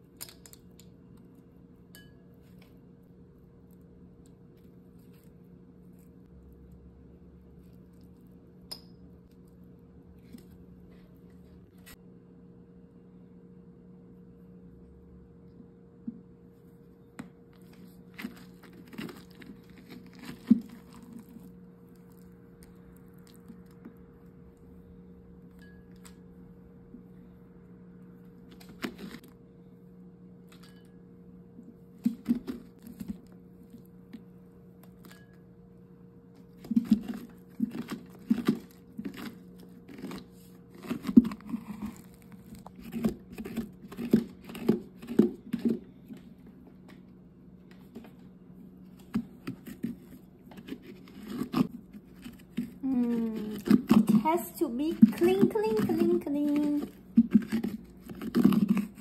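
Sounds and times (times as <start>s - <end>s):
steady low hum: 0.0s - 59.0s
utensil scraping pumpkin: 36.4s - 46.0s, 49.0s - 59.0s.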